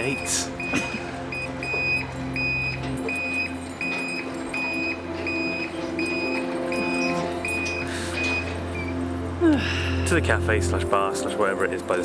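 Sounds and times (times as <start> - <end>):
gate warning beeps: 0.0 - 9.1.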